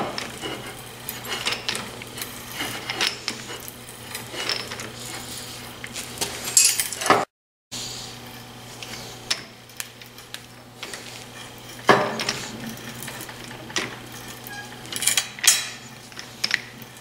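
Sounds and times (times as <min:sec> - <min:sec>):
metallic clinks and clanks: 0:11.4 - 0:16.7.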